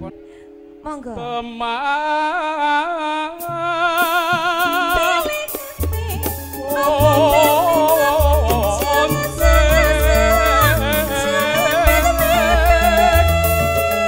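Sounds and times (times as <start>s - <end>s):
person singing with vibrato: 0.8s - 14.0s
cymbals: 3.4s - 14.0s
live band playing: 3.4s - 14.0s
deep drum and bass beat: 4.0s - 14.0s.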